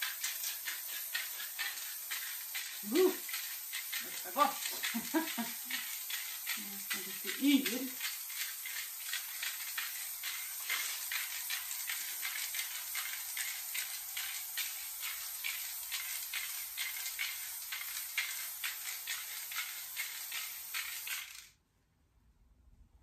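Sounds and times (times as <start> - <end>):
spray paint can hissing: 0.0 - 21.6.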